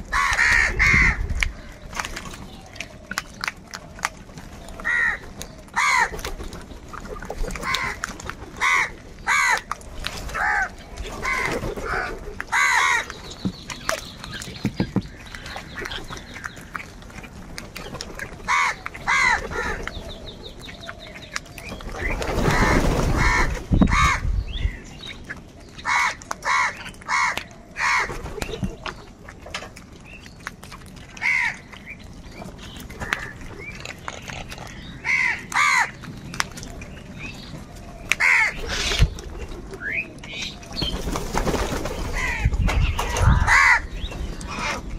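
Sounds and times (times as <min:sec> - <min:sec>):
crows cawing: 0:00.1 - 0:01.2, 0:04.8 - 0:05.2, 0:05.8 - 0:06.2, 0:07.6 - 0:08.0, 0:08.6 - 0:09.7, 0:10.3 - 0:13.1, 0:18.5 - 0:19.8, 0:22.5 - 0:24.2, 0:25.8 - 0:28.2, 0:31.2 - 0:31.7, 0:35.0 - 0:36.0, 0:38.2 - 0:39.0, 0:42.2 - 0:42.5, 0:43.1 - 0:44.8
wings flapping: 0:21.8 - 0:24.2, 0:40.7 - 0:43.8.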